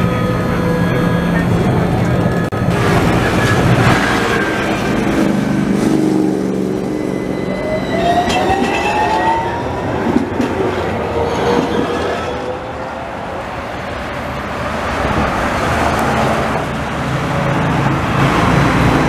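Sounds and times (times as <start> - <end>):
tram electric drive whining: 0.0 - 19.0.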